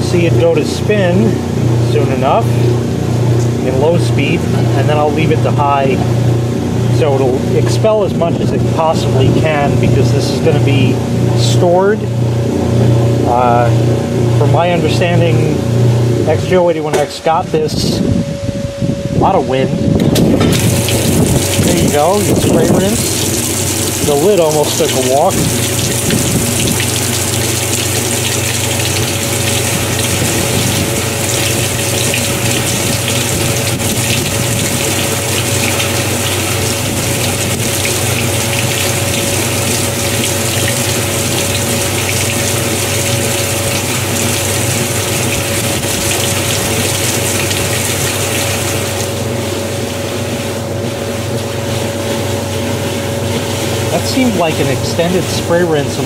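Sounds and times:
washing machine motor hum: 0.0s - 56.0s
water jets hissing: 20.5s - 56.0s.

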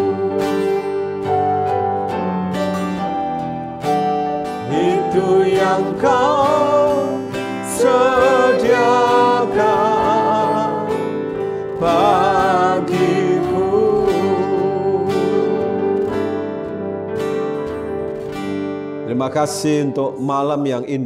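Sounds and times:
man singing: 0.0s - 0.9s, 4.6s - 16.2s
instrumental accompaniment: 0.0s - 21.0s.

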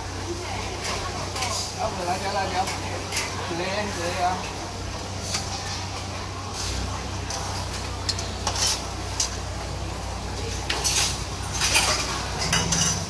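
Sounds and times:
clay pots and spoon clinking: 10.6s - 13.0s.

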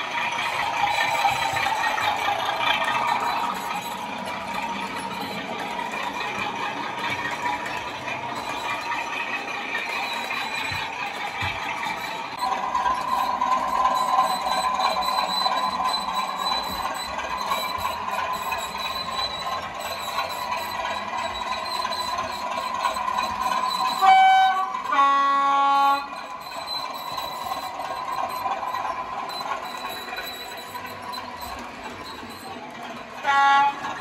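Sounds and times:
diesel engine running sound: 0.0s - 34.0s
two-tone train horn: 24.0s - 26.2s, 33.2s - 34.0s.

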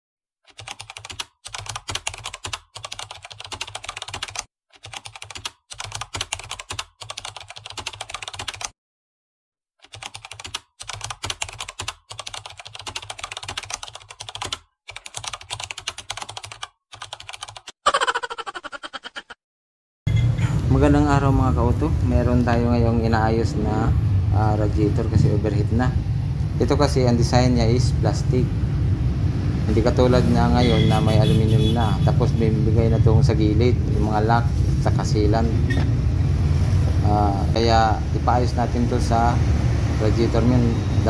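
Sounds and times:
computer keyboard typing: 0.5s - 8.8s, 9.8s - 17.8s.

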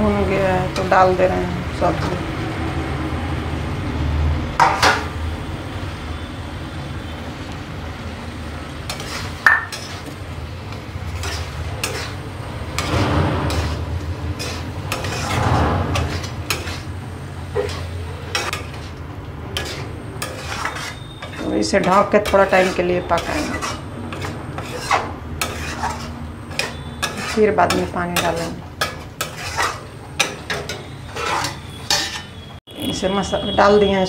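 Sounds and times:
spatula scraping metal pan: 8.9s - 32.6s.

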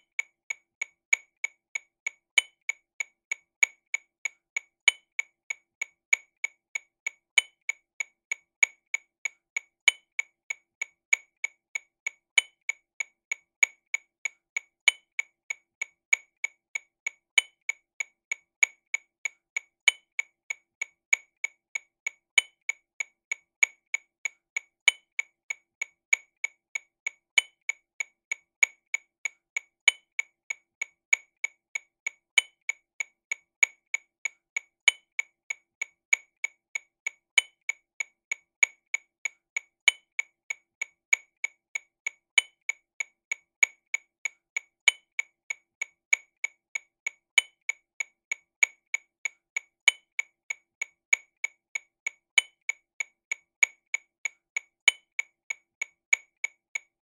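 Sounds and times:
metronome clicking: 44.8s - 45.2s, 49.8s - 50.0s, 54.8s - 55.0s.

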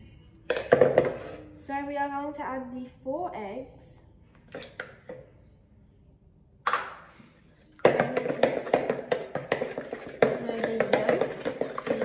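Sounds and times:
eggs poured into bowl: 7.8s - 12.0s
wooden spoon beating eggs: 7.8s - 12.0s.

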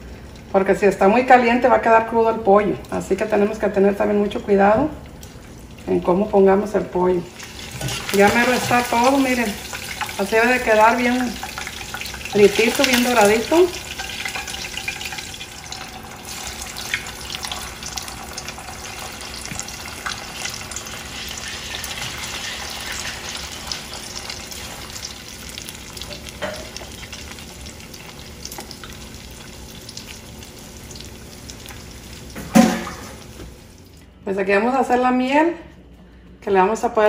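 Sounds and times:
chicken sizzling in hot oil: 7.3s - 33.9s.

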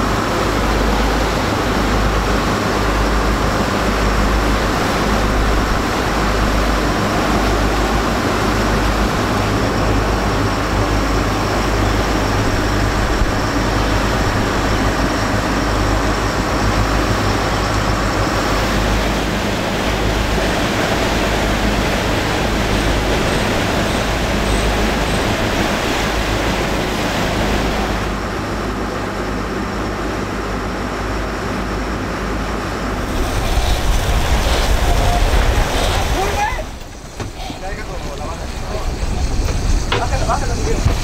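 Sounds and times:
water rushing past: 0.0s - 30.4s, 31.9s - 41.0s
boat engines droning: 0.0s - 41.0s
wind rushing: 32.9s - 41.0s.

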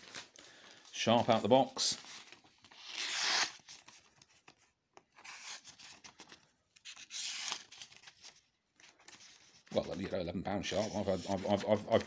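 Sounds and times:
knife slicing paper: 2.8s - 3.6s.

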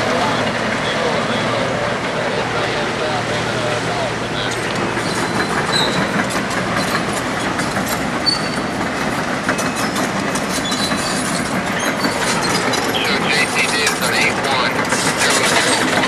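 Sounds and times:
machinery metallic clattering: 0.0s - 16.0s
short high squeaks: 4.5s - 8.8s, 9.6s - 13.2s.

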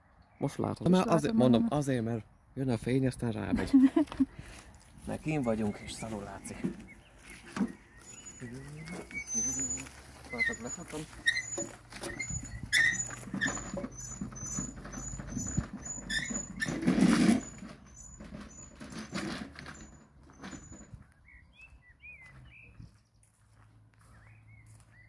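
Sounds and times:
footsteps: 3.8s - 14.8s, 20.5s - 25.0s.

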